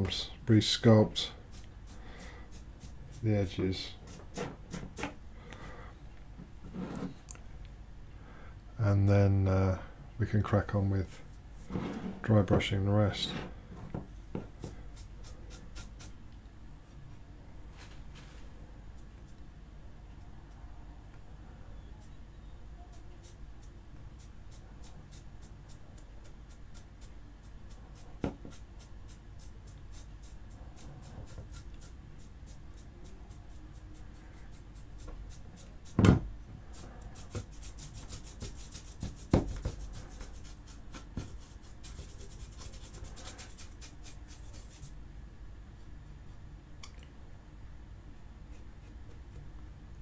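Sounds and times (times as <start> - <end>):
paintbrush bristles scratching plastic: 36.7 - 45.0.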